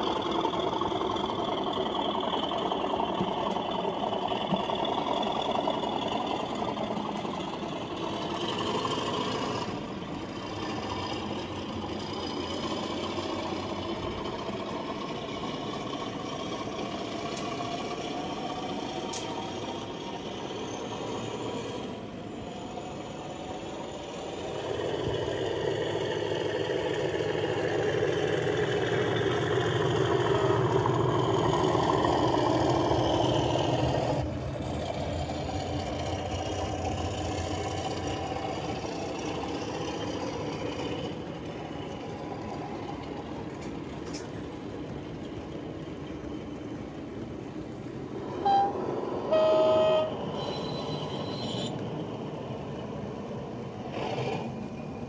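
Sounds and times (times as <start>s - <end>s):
model locomotive engine sound: 0.0s - 55.0s
locomotive horn blasts: 48.3s - 51.8s.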